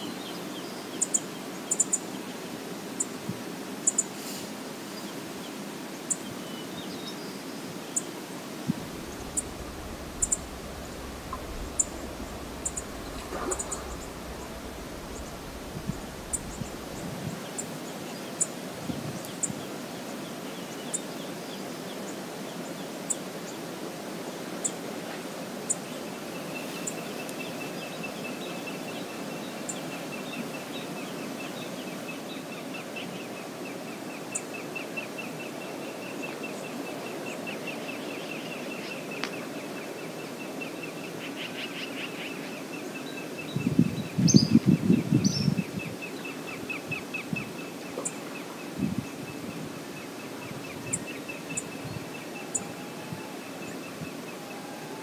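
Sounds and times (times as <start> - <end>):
wind: 0.0 - 55.0
river water rushing: 7.7 - 17.9
wind gust buffeting microphone: 8.6 - 17.7, 43.5 - 46.0, 48.7 - 49.8
fast chattering calls: 8.9 - 17.0
sharp high ticks: 9.0 - 17.0.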